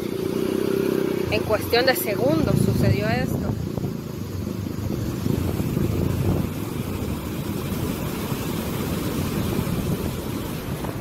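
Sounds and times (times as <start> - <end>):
floodwater rushing over embankment: 0.0 - 11.0.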